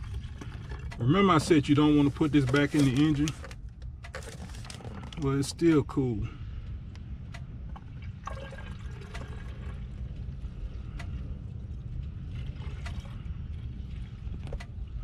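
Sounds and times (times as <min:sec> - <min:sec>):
coolant pouring and trickling: 0:00.0 - 0:03.3, 0:04.1 - 0:05.6, 0:07.7 - 0:15.0
low hum: 0:00.0 - 0:15.0.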